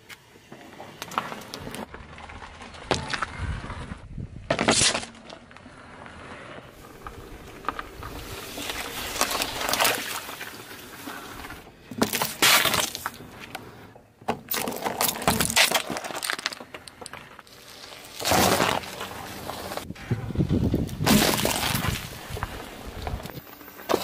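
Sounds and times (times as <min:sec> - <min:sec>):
tyre crushing plastic objects: 0:11.9 - 0:13.2, 0:14.2 - 0:19.8, 0:20.9 - 0:23.2.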